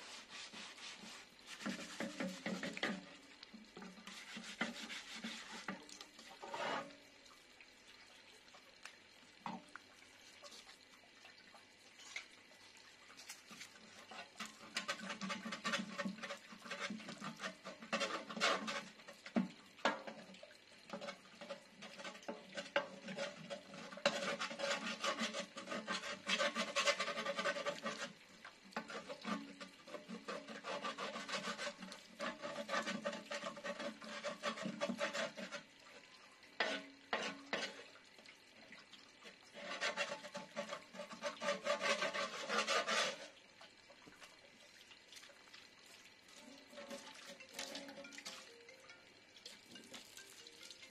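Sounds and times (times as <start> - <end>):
metal scraper scraping a pot: 0.0 - 3.2, 3.8 - 7.0, 13.5 - 20.2, 20.9 - 28.2, 28.8 - 35.7, 36.6 - 37.9, 39.5 - 43.4, 46.4 - 48.5.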